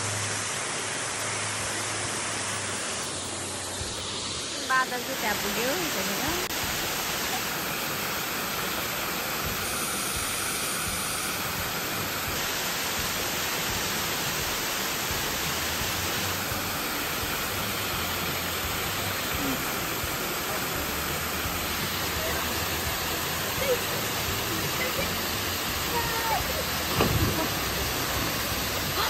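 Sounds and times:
water falling over rock: 12.0s - 29.0s.

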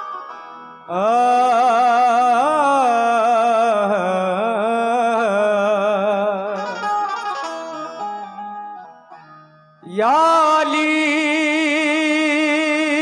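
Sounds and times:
harmonium tones: 0.0s - 12.1s
man singing ornamented melody: 0.8s - 7.5s, 9.8s - 13.0s.

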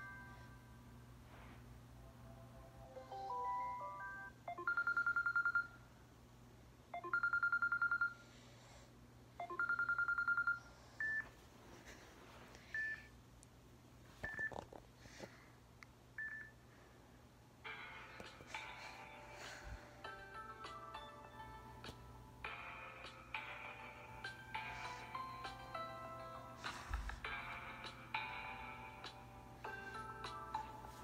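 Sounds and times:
trilling electronic phone ring: 3.7s - 5.8s, 7.0s - 8.2s, 9.4s - 10.7s.

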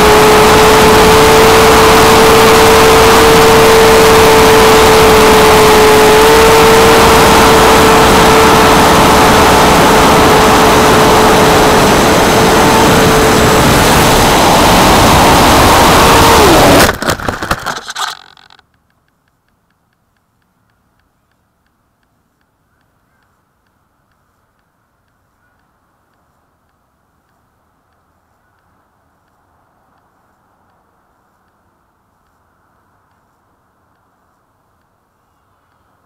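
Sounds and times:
model plane motors whining: 0.0s - 18.6s
model plane crash impacts: 16.4s - 18.6s.

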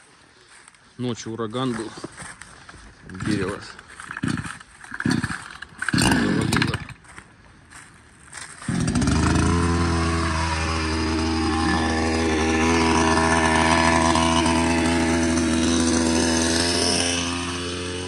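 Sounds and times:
chainsaw running: 3.0s - 7.2s, 8.6s - 18.0s.

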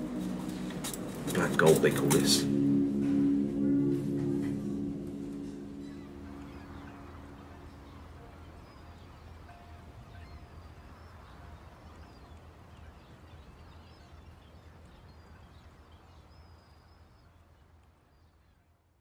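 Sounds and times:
low steady rumble: 0.0s - 10.8s
birds chirping: 0.0s - 18.6s.

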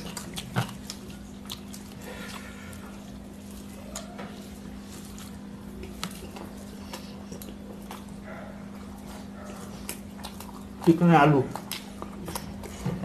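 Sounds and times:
chewing and mouth clicks: 0.0s - 13.0s
steady low hum: 0.0s - 13.0s.

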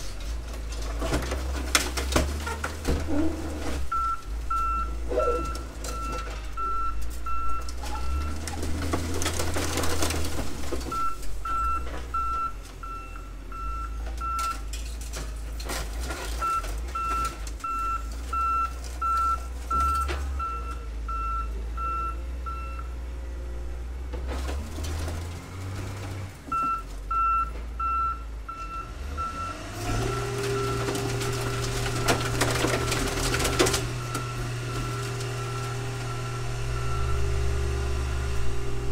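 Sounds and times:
metal scraping and crunching: 0.0s - 20.8s, 24.0s - 27.8s, 28.6s - 38.9s
diesel engine running: 0.0s - 38.9s
reversing alarm beeping: 3.9s - 8.4s, 10.9s - 14.7s, 16.4s - 22.9s, 31.9s - 38.8s
engine revving: 28.8s - 38.9s.

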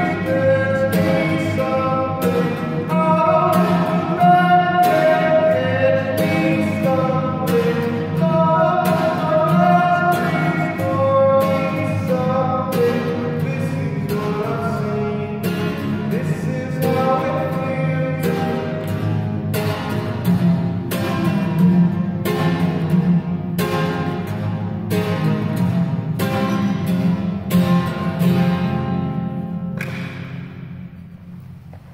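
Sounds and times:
man singing long notes: 0.0s - 18.8s
acoustic guitar strumming: 0.0s - 31.9s.

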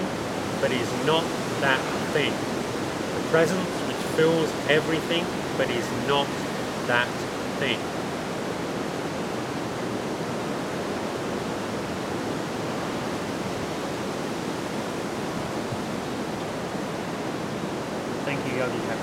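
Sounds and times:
steady rushing noise: 0.0s - 8.0s.

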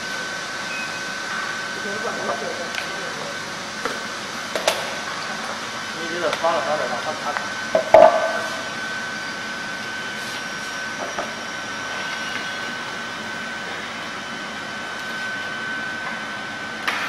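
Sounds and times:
heater blower rushing and whining: 0.0s - 17.0s.

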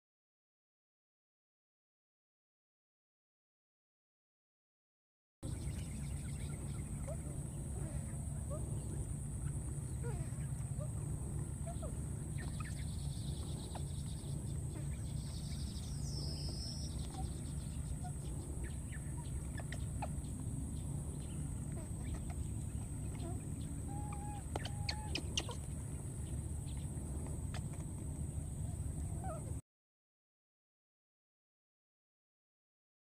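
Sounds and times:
steady high hum: 5.4s - 29.6s
steady low rumble: 5.4s - 29.6s
chickens clucking: 6.6s - 29.5s.

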